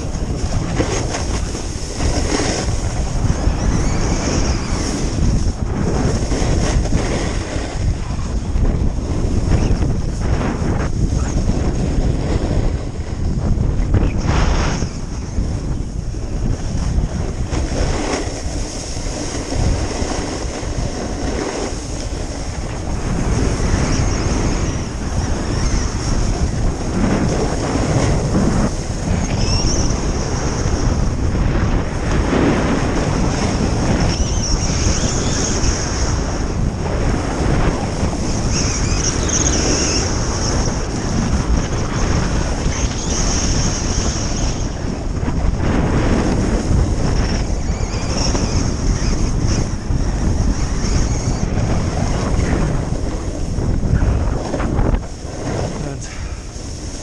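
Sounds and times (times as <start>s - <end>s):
skis scraping on packed snow: 0.0s - 3.2s, 4.2s - 8.4s, 16.6s - 24.7s, 54.0s - 57.0s
wind buffeting microphone: 0.0s - 57.0s.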